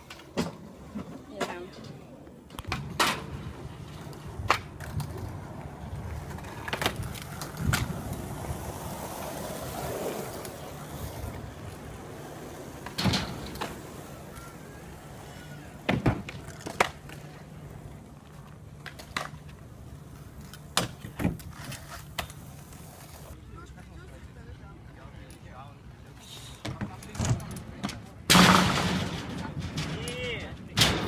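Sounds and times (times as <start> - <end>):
scooter decks clacking on ground: 0.0 - 23.4
scooter wheels rolling on asphalt: 0.0 - 30.8.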